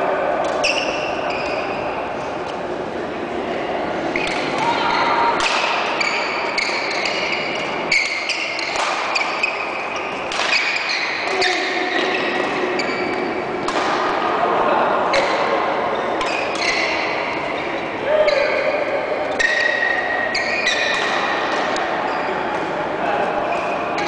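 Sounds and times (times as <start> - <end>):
shoes squeaking on court floor: 0.4 - 2.0, 5.8 - 13.6, 15.1 - 22.5
rackets hitting shuttlecock: 5.3 - 14.4, 19.3 - 21.9.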